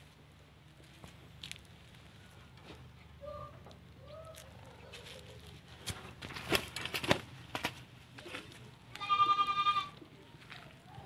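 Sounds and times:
crackles and rustles: 0:00.3 - 0:09.0, 0:10.0 - 0:11.0
animal bleating: 0:08.9 - 0:10.0.

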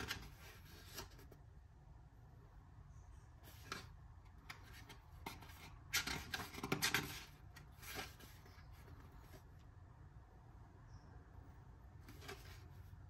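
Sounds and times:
book pages turning: 0:00.0 - 0:01.5, 0:03.4 - 0:09.7, 0:11.9 - 0:13.0.

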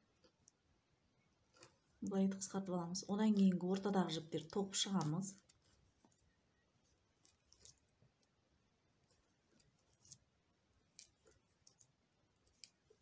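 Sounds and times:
knitting needles clicking: 0:01.5 - 0:06.4, 0:07.2 - 0:08.4, 0:09.0 - 0:13.0.

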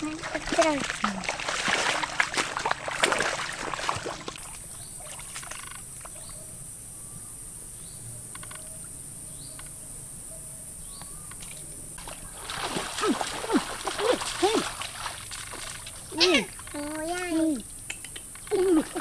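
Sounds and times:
water splashing: 0:00.0 - 0:05.8, 0:11.4 - 0:19.0
faint bird chirps: 0:04.7 - 0:12.3.

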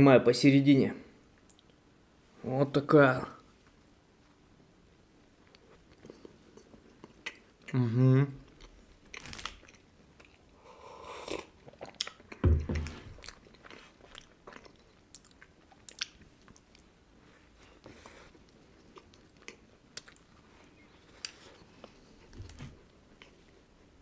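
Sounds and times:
chewing crunchy cookie: 0:05.4 - 0:07.8, 0:08.4 - 0:10.6, 0:11.2 - 0:17.0, 0:17.7 - 0:22.3
low thump: 0:12.4 - 0:13.1.

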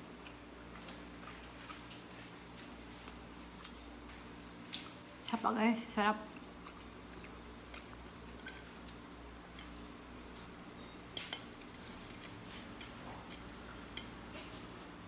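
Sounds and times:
fork scraping and clinking on plate: 0:10.8 - 0:14.6.

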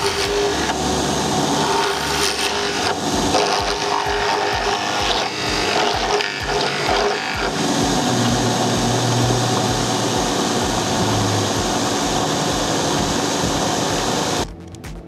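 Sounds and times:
drill bit cutting into wood: 0:00.0 - 0:14.4
electric motor humming: 0:00.0 - 0:14.4.

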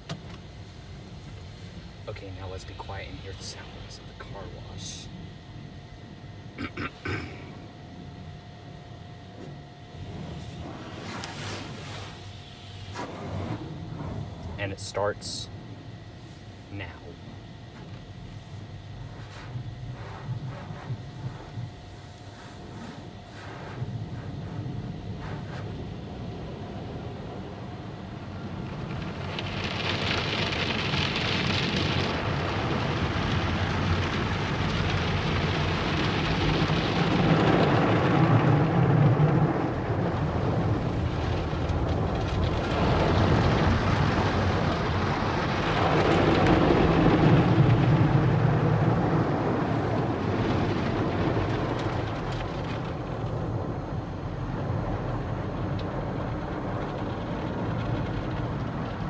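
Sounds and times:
low rumble: 0:23.1 - 0:59.0
water spray pelting car: 0:28.3 - 0:53.7.

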